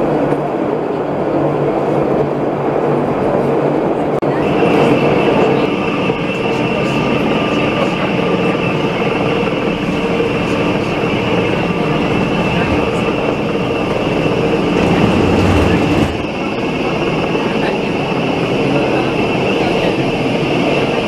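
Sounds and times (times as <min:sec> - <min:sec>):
train wheels running noise: 0:00.0 - 0:21.0
high steady whine: 0:04.2 - 0:20.8.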